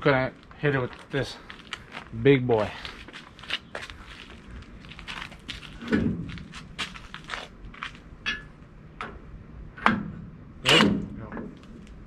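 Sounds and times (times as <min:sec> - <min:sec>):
metal clanks and knocks: 0:08.2 - 0:09.2, 0:09.8 - 0:11.6.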